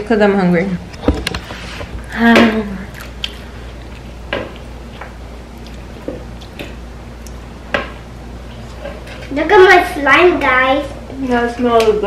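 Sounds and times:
low steady hum: 0.0s - 12.0s
person chewing: 2.8s - 7.4s.

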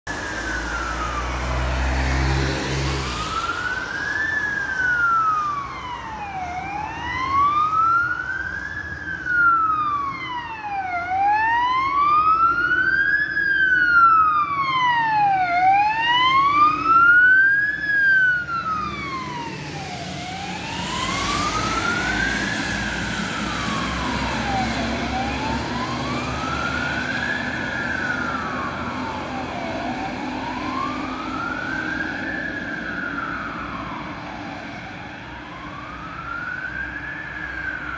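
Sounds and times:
car driving by: 0.1s - 3.8s
fire engine siren wailing: 0.1s - 37.9s.

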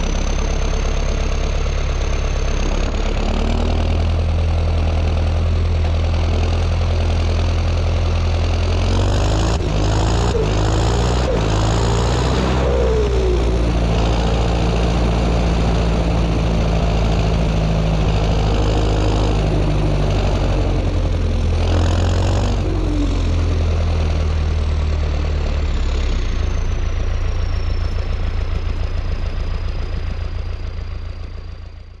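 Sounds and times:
tractor diesel engine running: 0.0s - 32.0s.

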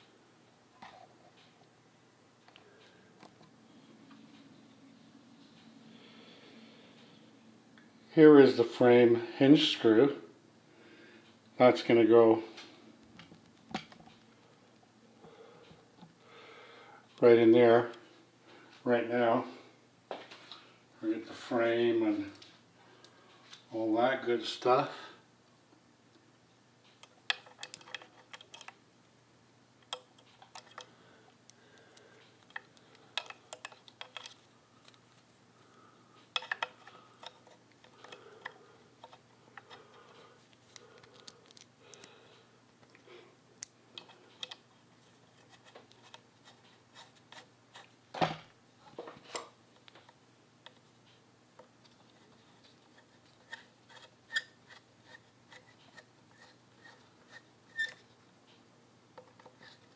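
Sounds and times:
small metal parts clicking: 27.0s - 28.8s, 32.5s - 35.0s, 36.3s - 39.7s.

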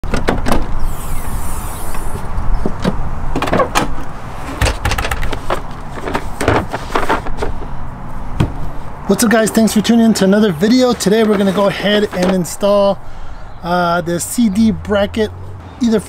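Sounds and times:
tailgate clunks and knocks: 0.0s - 0.8s, 2.6s - 7.6s, 8.4s - 8.6s.

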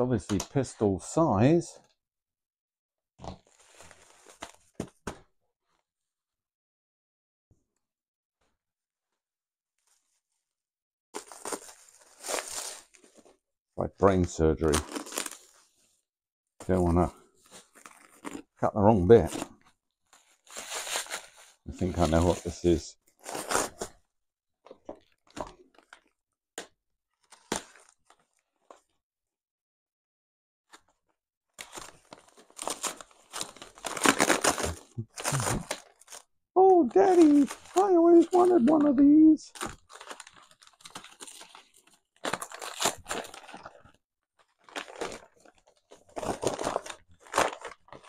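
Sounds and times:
bubble wrap and paper crinkling: 3.4s - 4.9s, 11.2s - 13.4s, 14.6s - 15.9s, 16.8s - 18.5s, 20.1s - 22.6s, 27.2s - 29.0s, 31.6s - 48.0s
paper ripping: 14.6s - 15.6s, 31.7s - 36.2s, 37.0s - 43.8s, 44.6s - 48.0s.

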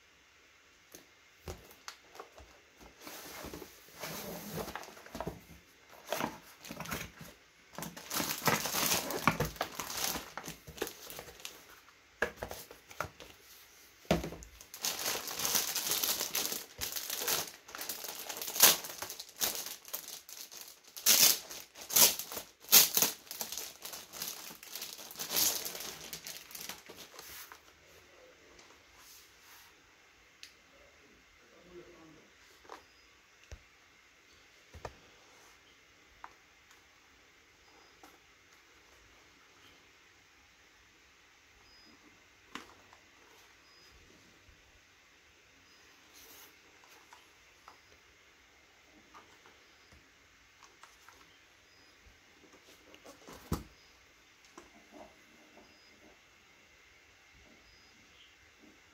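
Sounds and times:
plastic wrapping crinkling: 1.5s - 13.4s, 14.1s - 27.7s.

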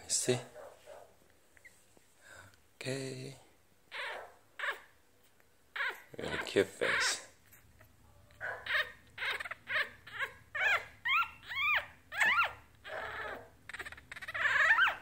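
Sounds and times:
puppy squeaking and whimpering: 3.9s - 5.0s, 5.7s - 15.0s.

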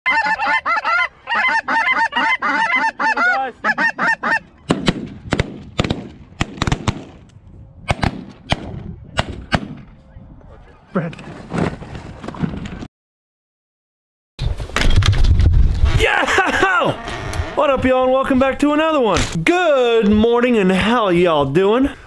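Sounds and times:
snow geese honking: 0.1s - 4.6s
shotgun blasts: 4.7s - 7.2s, 7.9s - 9.9s.

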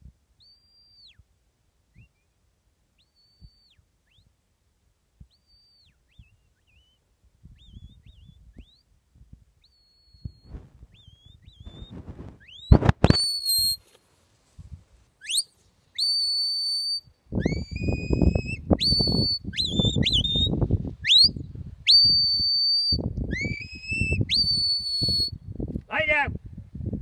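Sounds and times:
high piercing whistles: 3.1s - 4.2s, 5.3s - 7.0s, 9.6s - 13.8s, 15.2s - 25.4s.

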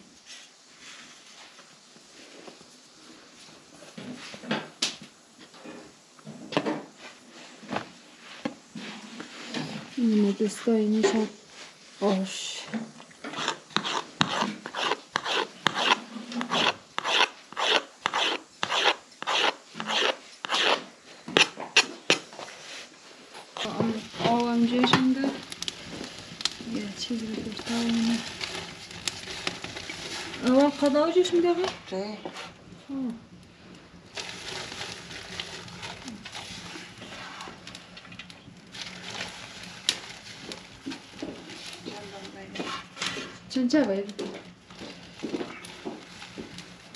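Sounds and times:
wood fire crackling and hissing: 0.0s - 46.9s
knife scraping dough on metal tray: 13.3s - 22.2s.

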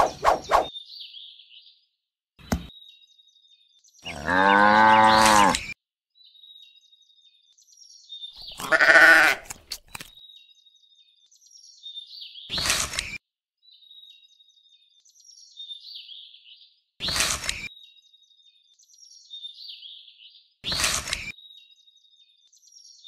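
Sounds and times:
sheep bleating: 4.1s - 5.6s, 8.6s - 9.5s.

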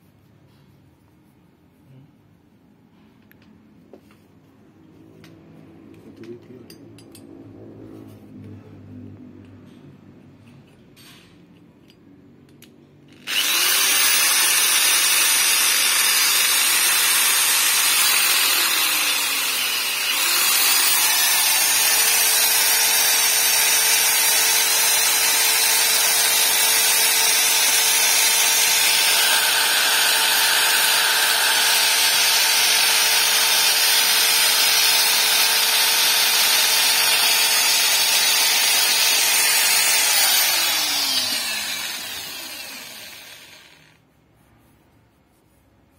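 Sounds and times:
electric drill grinding metal: 13.1s - 44.0s.

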